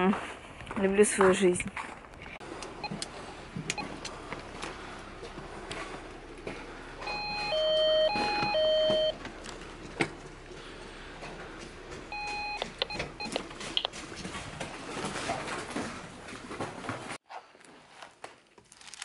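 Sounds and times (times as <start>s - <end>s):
intercom keypad beeping: 7.1s - 9.2s, 12.1s - 13.9s.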